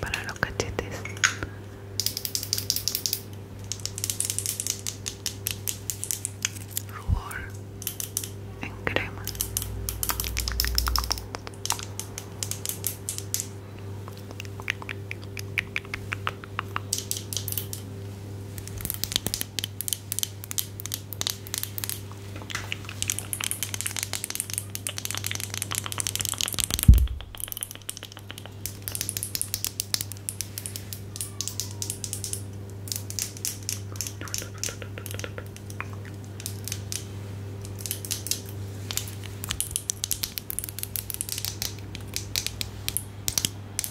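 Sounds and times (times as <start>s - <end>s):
sharp low thump: 26.8s - 27.4s.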